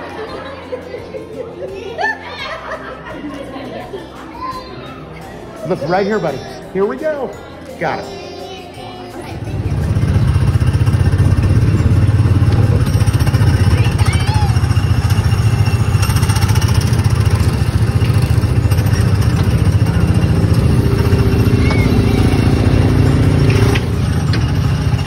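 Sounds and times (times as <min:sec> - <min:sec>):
small gasoline engine running: 0:09.6 - 0:25.0.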